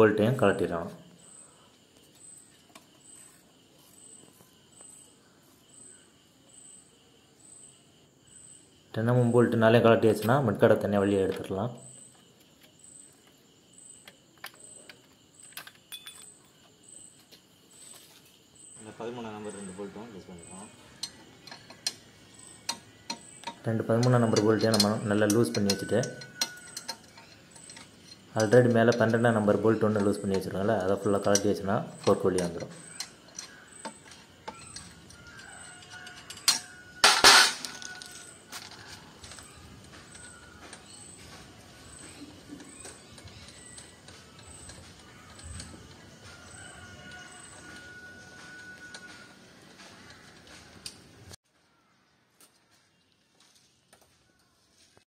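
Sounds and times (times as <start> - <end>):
short metallic clink: 15.9 - 16.4
loud metal clatters: 35.5 - 38.4.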